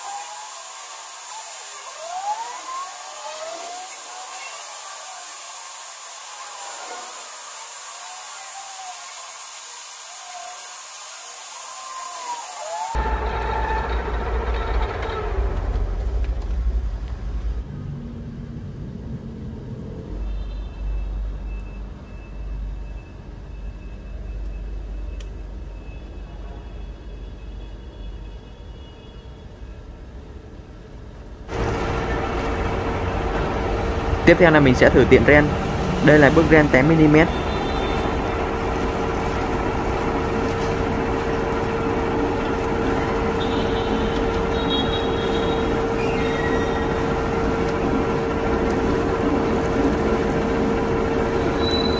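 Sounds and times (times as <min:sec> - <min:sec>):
metal lathe rumbling: 0:13.0 - 0:17.7, 0:31.5 - 0:51.9.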